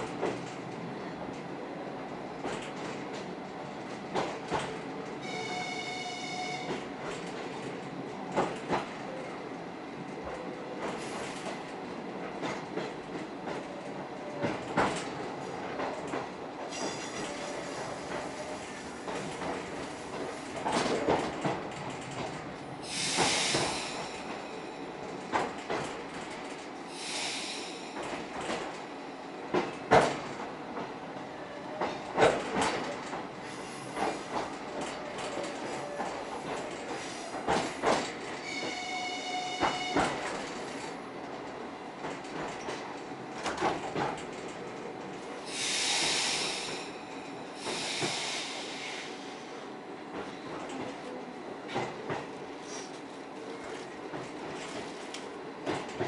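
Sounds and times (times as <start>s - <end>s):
electric train running on rails: 0.0s - 56.0s.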